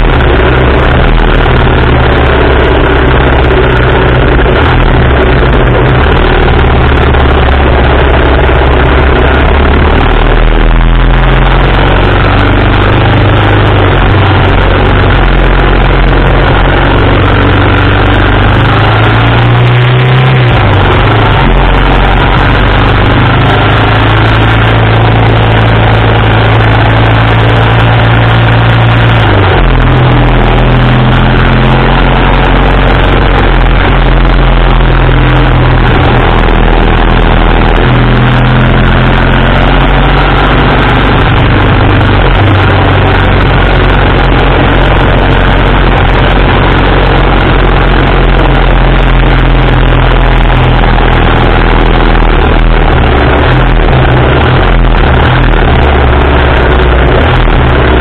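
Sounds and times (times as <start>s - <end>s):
motorcycle engine running: 0.0s - 58.0s
wind noise: 0.0s - 58.0s.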